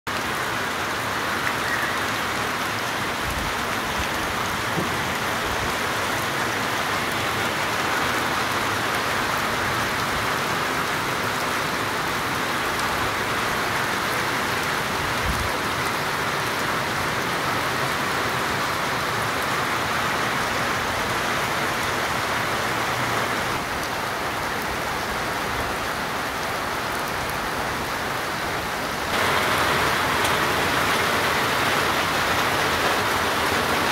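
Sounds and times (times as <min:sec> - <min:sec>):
heavy rain falling: 0:00.1 - 0:33.9.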